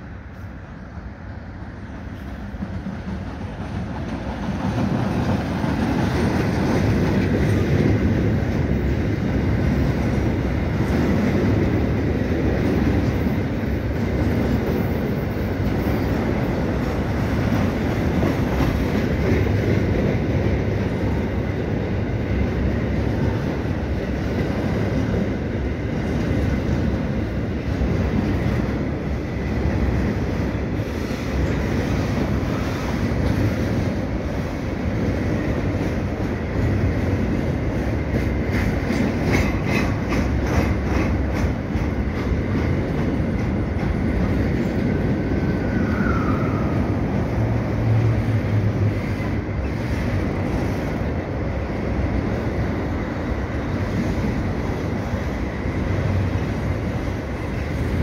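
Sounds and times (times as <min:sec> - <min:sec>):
diesel locomotive passing: 0:00.0 - 0:58.0
freight wagon wheels rumbling on rails: 0:02.3 - 0:58.0.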